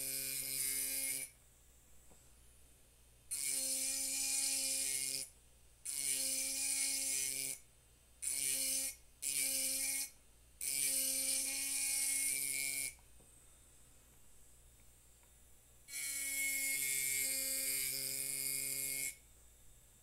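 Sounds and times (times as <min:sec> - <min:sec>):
engraver buzzing on glass: 0:00.0 - 0:01.4, 0:03.3 - 0:05.3, 0:05.9 - 0:07.6, 0:08.2 - 0:13.0, 0:15.9 - 0:19.2.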